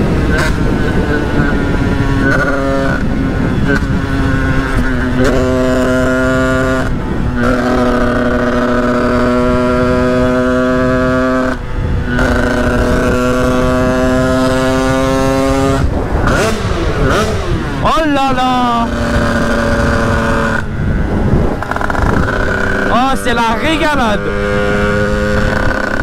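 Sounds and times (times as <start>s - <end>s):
two-stroke engine high drone: 0.0s - 26.0s.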